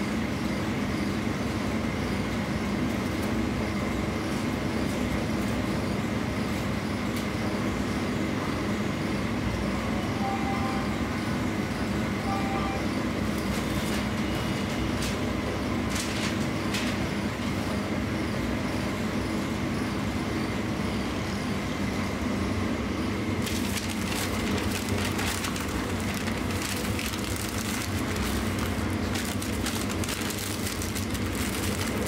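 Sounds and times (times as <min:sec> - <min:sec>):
low background hum: 0:00.0 - 0:32.0
paper crinkling and rustling: 0:15.9 - 0:17.0, 0:23.4 - 0:32.0.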